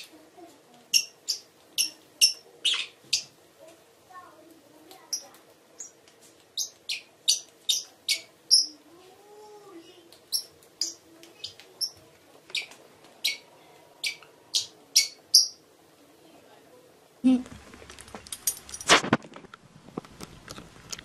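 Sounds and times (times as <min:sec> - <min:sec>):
parrot chirping: 0:00.9 - 0:03.4, 0:05.1 - 0:06.0, 0:06.6 - 0:08.8, 0:10.3 - 0:15.6.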